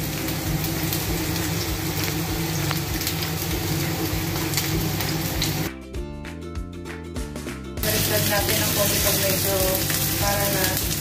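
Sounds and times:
potatoes sizzling in oil: 0.0s - 5.7s, 7.8s - 11.0s
music: 0.0s - 11.0s.

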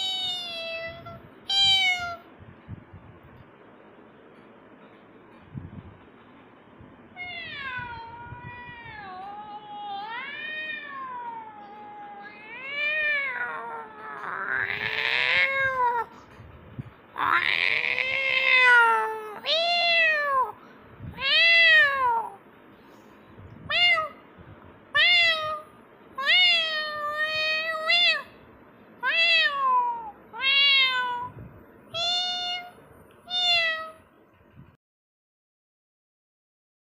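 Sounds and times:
kitten meowing: 0.0s - 2.2s, 7.2s - 16.1s, 17.2s - 22.4s, 23.7s - 24.2s, 25.0s - 28.4s, 29.0s - 34.0s.

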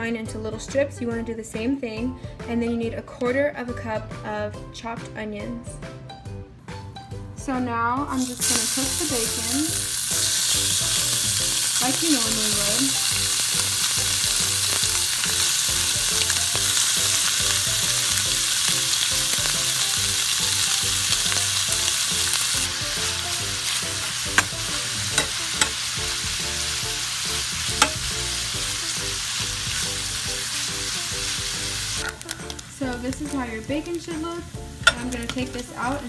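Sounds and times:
bacon sizzling in a pan: 8.1s - 36.0s.

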